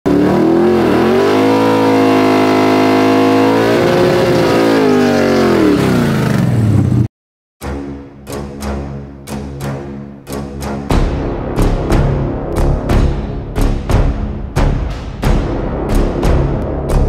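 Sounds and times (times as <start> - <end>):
car engine at high revs: 0.1 - 7.1
music with heavy drum hits: 7.6 - 17.0.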